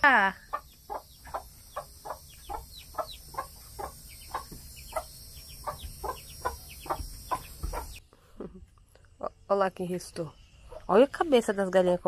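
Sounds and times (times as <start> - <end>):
hens clucking: 0.4 - 8.0.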